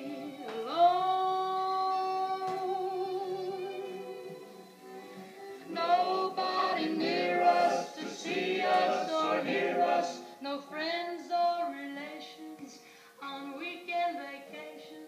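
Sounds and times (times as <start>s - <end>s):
small choir singing: 0.0s - 1.2s, 1.9s - 10.5s.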